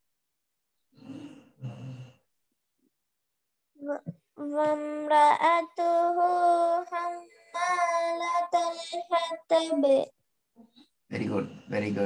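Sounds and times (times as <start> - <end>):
child chanting melodic recitation: 3.8 - 10.1.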